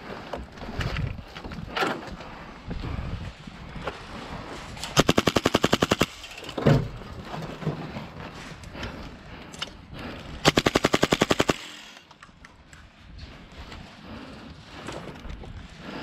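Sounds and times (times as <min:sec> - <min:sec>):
airsoft gun firing bursts: 0:05.0 - 0:06.3, 0:10.4 - 0:12.1.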